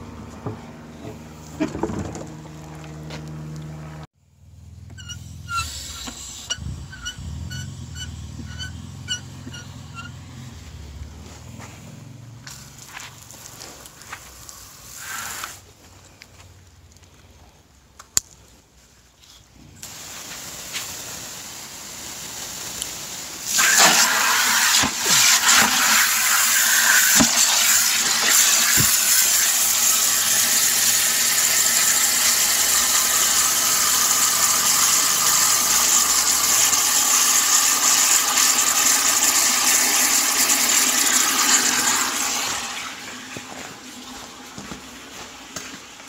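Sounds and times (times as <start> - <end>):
hose water spraying into plastic bucket: 12.5 - 15.7, 19.8 - 46.0.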